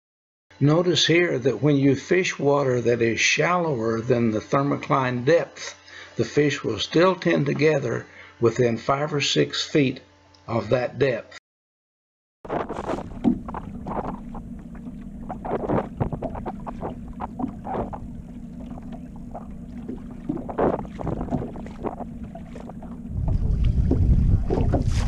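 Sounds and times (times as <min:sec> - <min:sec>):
boat motor hum: 0:00.6 - 0:09.4, 0:12.5 - 0:25.0
waves splashing against hull: 0:12.5 - 0:25.0
wind buffeting microphone: 0:19.5 - 0:25.0.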